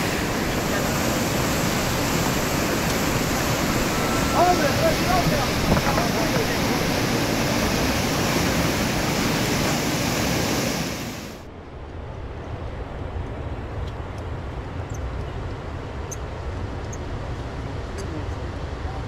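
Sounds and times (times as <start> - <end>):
river rapids rushing: 0.0 - 11.5
low wind rumble: 0.0 - 19.0.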